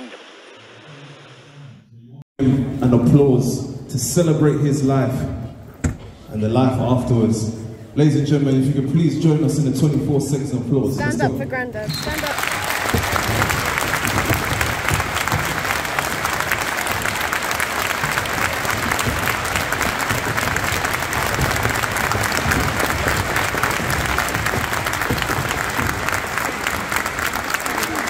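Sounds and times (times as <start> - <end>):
crowd applauding: 11.8 - 28.0.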